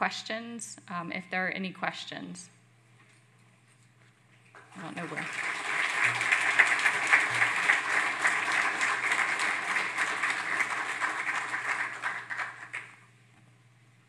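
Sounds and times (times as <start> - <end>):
audience applauding: 4.6 - 13.1.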